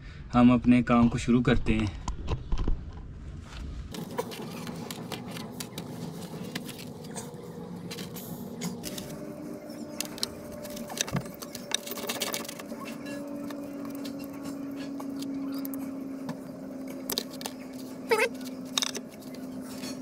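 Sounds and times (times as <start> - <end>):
wooden bar clicking and scraping: 9.8 - 15.8.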